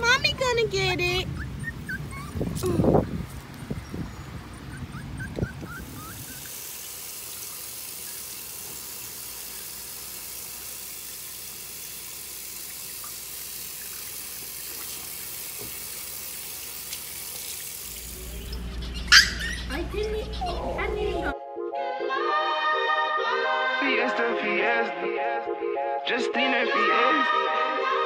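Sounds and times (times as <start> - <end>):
puppy whimpers: 1.2 - 6.5, 18.2 - 21.3
faucet running: 5.6 - 20.2.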